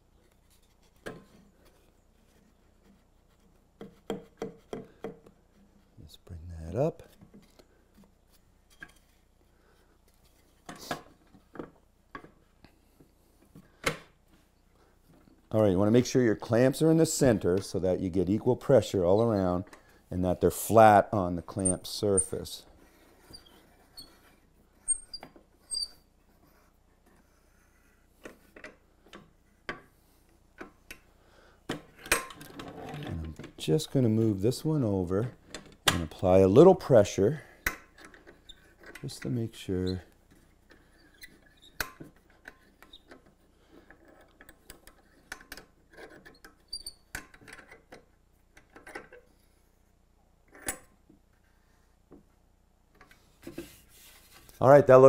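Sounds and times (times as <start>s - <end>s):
clamps squeaking: 21.5s - 22.6s, 23.2s - 26.1s, 37.0s - 43.2s.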